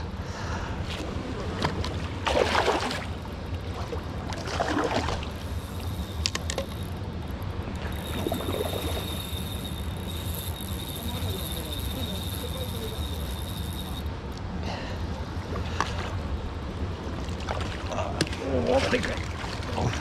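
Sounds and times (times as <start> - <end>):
water splashing: 1.6 - 6.9.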